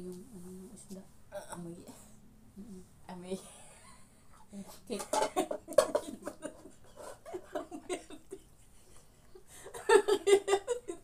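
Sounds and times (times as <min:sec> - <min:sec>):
women laughing: 0:05.1 - 0:11.0.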